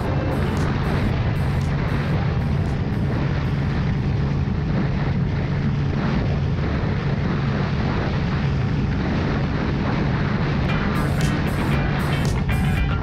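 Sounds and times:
motorcycle engine running: 0.0 - 3.6, 10.7 - 13.0
wind rushing over camera: 0.0 - 13.0.

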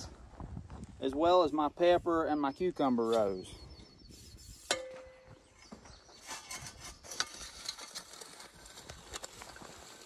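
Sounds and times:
plow scraping through soil: 6.1 - 10.0.

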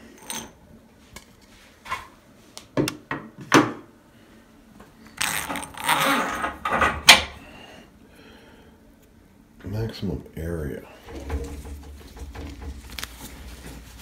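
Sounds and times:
rustling and clattering: 5.2 - 7.4, 10.9 - 14.0.

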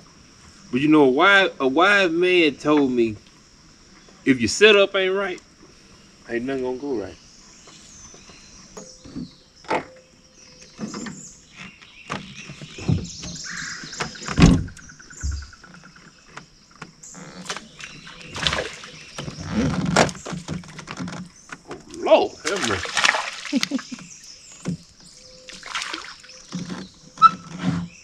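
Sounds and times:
bird calls: 5.7 - 28.0
knocks and bumps in boat: 10.6 - 28.0.

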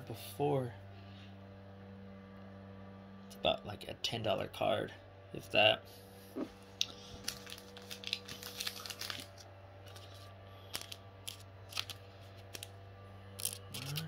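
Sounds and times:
low electrical hum: 0.0 - 14.0
cards clicking and rustling: 6.8 - 12.7, 13.4 - 14.0.

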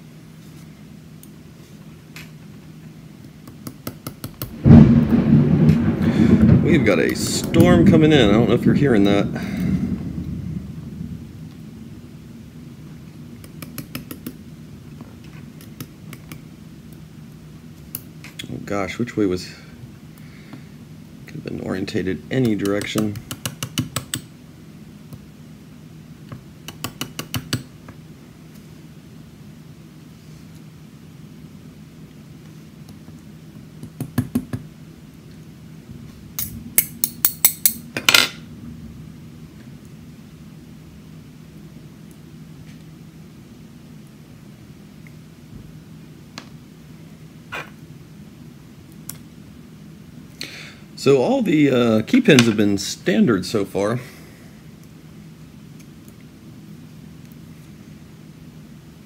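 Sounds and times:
low steady rumble: 4.5 - 23.3, 34.8 - 53.8.

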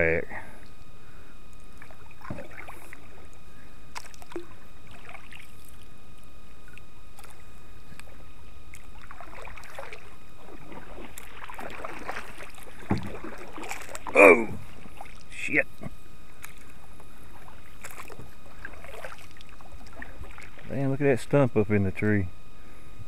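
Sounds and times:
paddle strokes in water: 1.7 - 20.8
light knocks on kayak: 12.8 - 13.1.

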